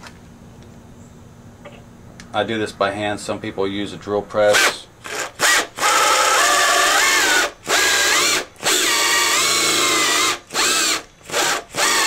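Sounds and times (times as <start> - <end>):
air drill whining: 4.5 - 12.0.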